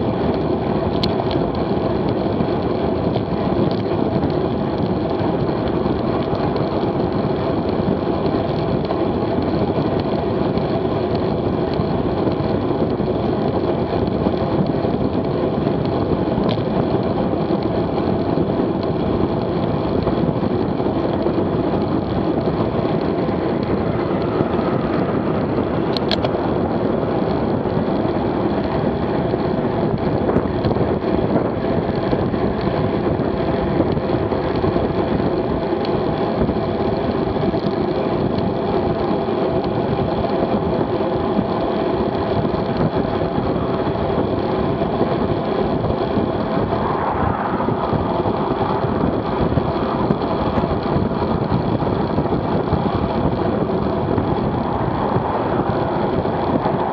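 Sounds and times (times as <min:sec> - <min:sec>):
bicycle tyres on road: 0:00.0 - 0:56.9
constant hum: 0:00.0 - 0:56.9
wind rushing: 0:11.3 - 0:35.6, 0:42.1 - 0:56.9.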